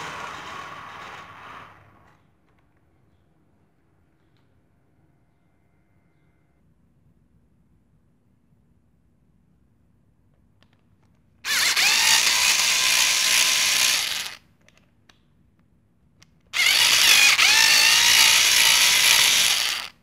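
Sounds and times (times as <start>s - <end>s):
cordless drill driving screws: 11.5s - 14.4s, 16.6s - 19.9s.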